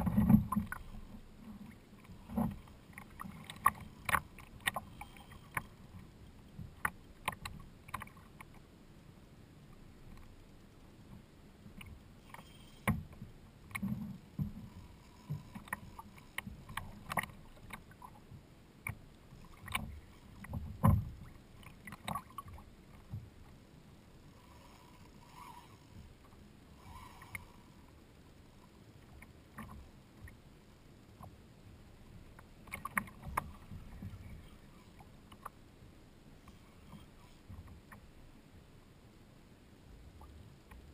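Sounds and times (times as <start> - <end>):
water slapping kayak hull: 0.0 - 8.7, 11.1 - 23.6.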